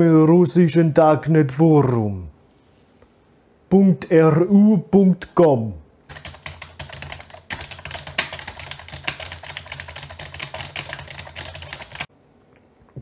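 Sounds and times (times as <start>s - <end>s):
rapid keyboard typing: 6.1s - 12.1s.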